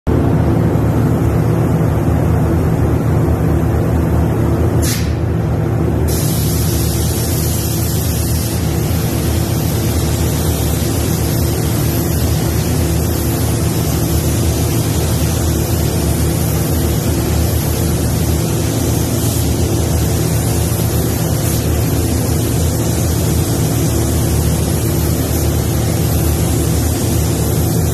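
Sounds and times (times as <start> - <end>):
ventilation fans humming: 0.1 - 27.9
spray gun hissing: 4.8 - 5.2, 6.1 - 27.9.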